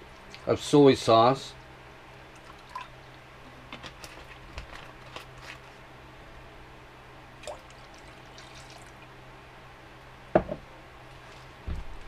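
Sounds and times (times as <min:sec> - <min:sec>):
steady low hum: 0:00.0 - 0:12.0
liquid pouring into glass bowl: 0:07.4 - 0:09.0.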